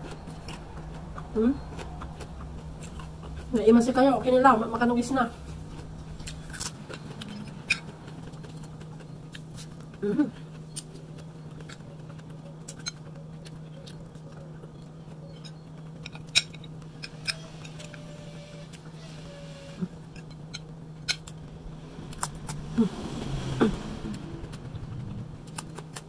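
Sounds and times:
chewing crisp cucumber: 0:00.0 - 0:03.6, 0:05.5 - 0:18.0
steady low hum: 0:00.0 - 0:26.0
person humming mm: 0:22.5 - 0:24.5.

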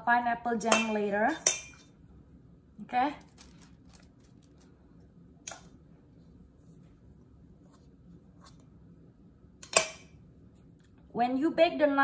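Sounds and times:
teaspoon clinking on metal bowl: 0:00.7 - 0:01.9.

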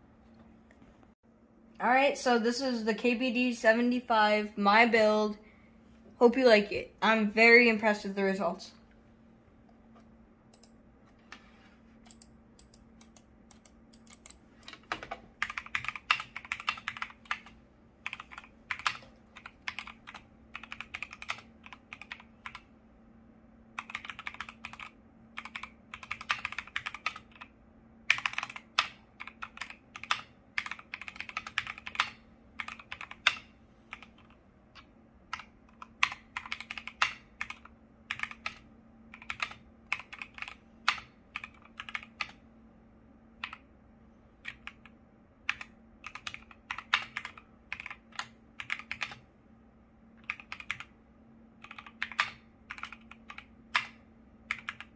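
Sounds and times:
mechanical keyboard typing: 0:12.0 - 0:22.7, 0:23.8 - 0:42.4, 0:43.4 - 0:43.6, 0:44.4 - 0:49.2, 0:50.2 - 0:51.0, 0:51.6 - 0:54.9.

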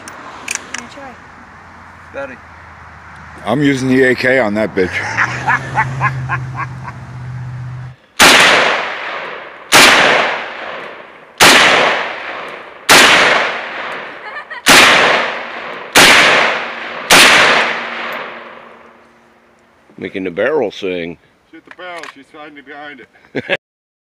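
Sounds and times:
rifle shots echoing: 0:08.2 - 0:18.8.

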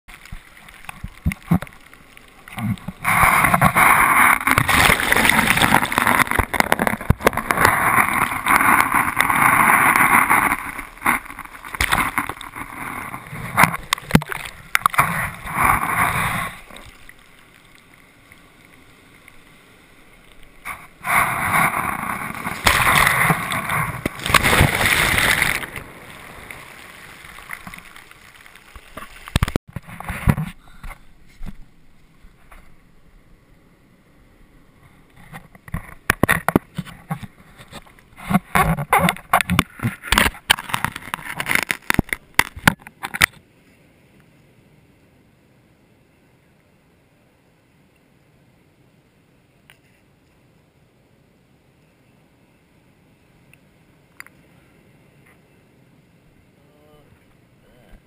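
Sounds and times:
muffled underwater surf rushing: 0:00.1 - 0:17.6, 0:18.4 - 0:32.8.

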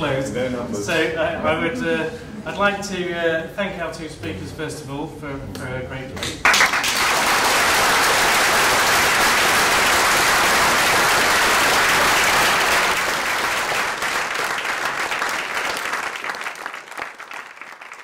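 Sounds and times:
audience applauding: 0:06.4 - 0:18.0.

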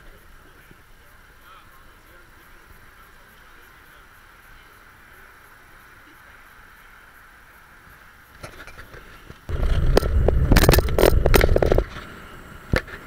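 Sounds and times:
wind rumble on camera: 0:08.5 - 0:13.0.

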